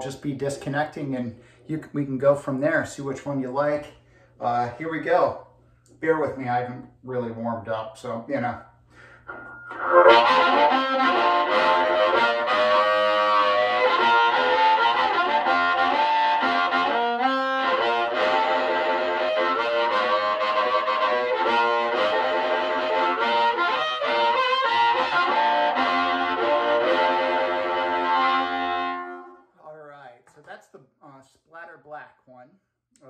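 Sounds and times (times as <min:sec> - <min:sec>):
overdriven amplified harmonica: 0:08.9 - 0:29.4.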